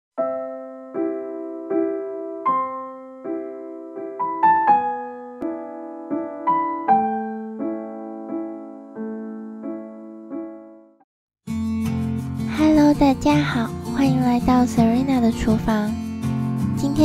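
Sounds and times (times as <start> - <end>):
soft piano music: 0.2 - 11.0.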